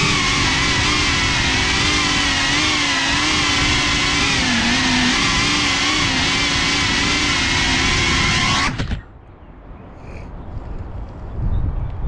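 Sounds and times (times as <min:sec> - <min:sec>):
drone motors whining: 0:00.0 - 0:09.1
propeller wash rushing: 0:00.0 - 0:09.1.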